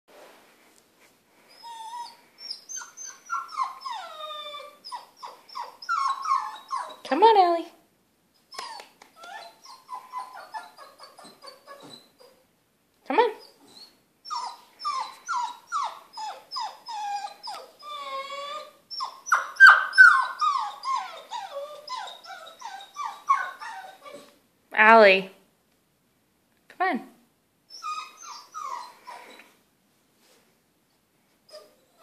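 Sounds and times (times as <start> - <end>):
puppy whimpering and crying: 1.5 - 7.1, 8.4 - 12.4, 13.4 - 24.4, 27.7 - 29.4, 31.5 - 32.0.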